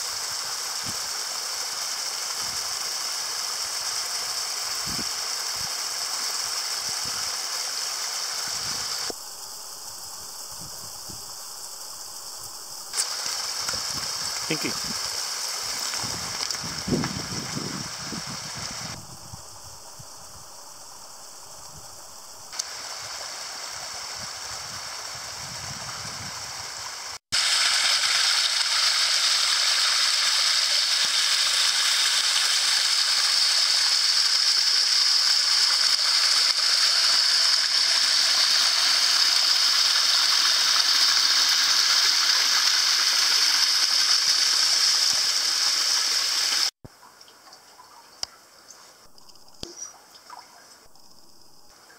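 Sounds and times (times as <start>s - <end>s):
water trickling over rocks: 12.9s - 17.8s, 27.4s - 50.9s.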